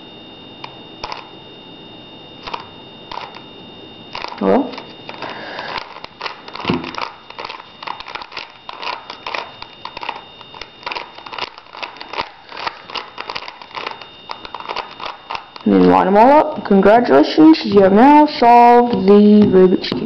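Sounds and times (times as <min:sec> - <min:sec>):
puzzle cube clicking and rattling: 0:01.0 - 0:01.2, 0:02.4 - 0:03.4, 0:04.2 - 0:04.4, 0:05.1 - 0:15.7.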